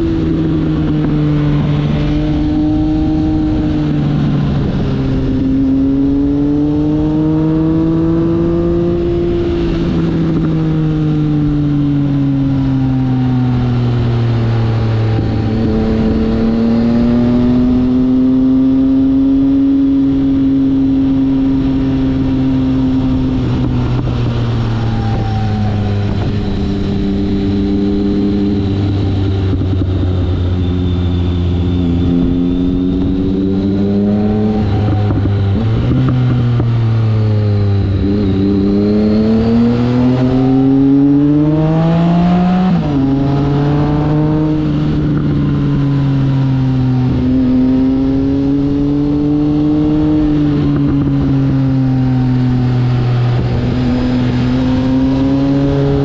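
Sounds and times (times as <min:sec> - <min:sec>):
motorcycle engine: 0:00.0 - 0:56.0.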